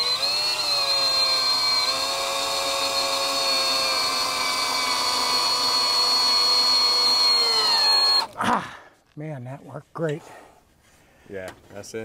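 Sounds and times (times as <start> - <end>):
power drill driving screw: 0.0 - 8.4.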